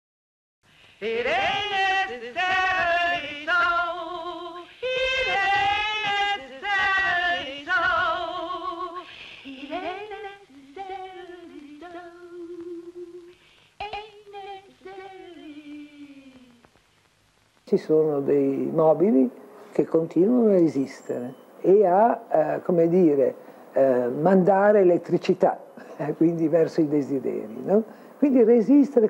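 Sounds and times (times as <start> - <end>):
woman singing with vibrato: 1.0 - 16.8.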